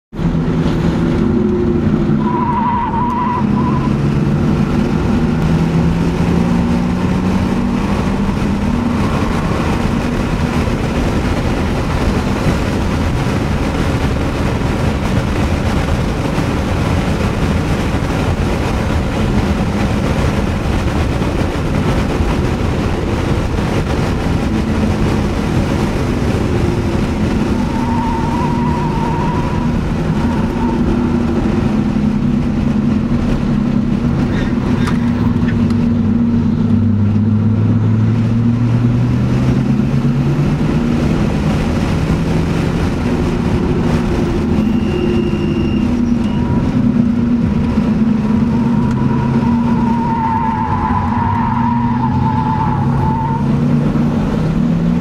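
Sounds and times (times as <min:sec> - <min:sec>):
car engine accelerating: 0:00.1 - 0:55.0
wind and tyre noise: 0:00.1 - 0:55.0
tyre squeal: 0:02.2 - 0:04.0, 0:27.6 - 0:31.3, 0:44.5 - 0:46.9.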